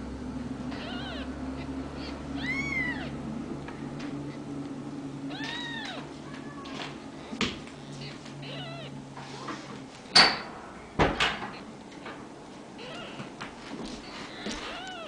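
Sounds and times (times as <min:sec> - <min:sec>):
kittens mewing: 0:00.7 - 0:03.3, 0:05.2 - 0:09.8, 0:12.8 - 0:15.0.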